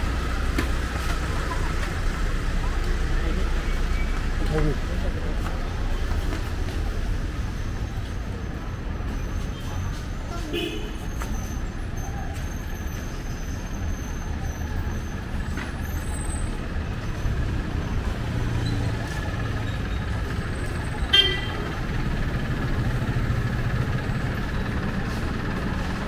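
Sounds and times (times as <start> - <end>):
street traffic engines: 0.0 - 26.0
vehicle horn toot: 10.5 - 11.1, 21.1 - 21.7
low engine hum: 15.2 - 26.0.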